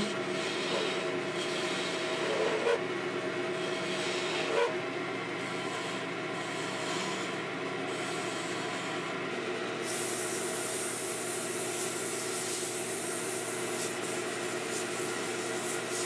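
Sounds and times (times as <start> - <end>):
turning tool scraping wood: 0.0 - 2.8
wood lathe humming: 0.0 - 4.8.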